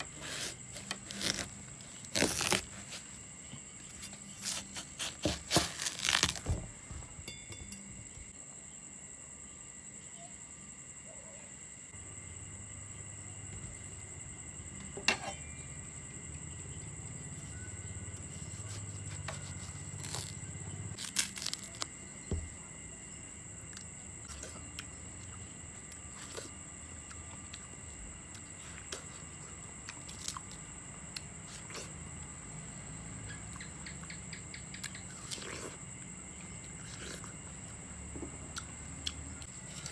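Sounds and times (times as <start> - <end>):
knife cutting watermelon: 0.0 - 3.2, 3.9 - 6.7
high-pitched insect trill: 0.0 - 39.9.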